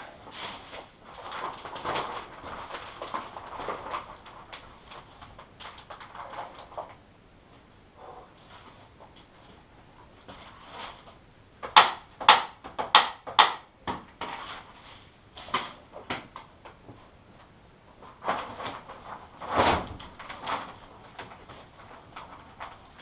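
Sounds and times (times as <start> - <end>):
plastic sheeting snapping: 0.0 - 7.0, 10.3 - 14.8, 15.4 - 16.8, 18.0 - 23.0.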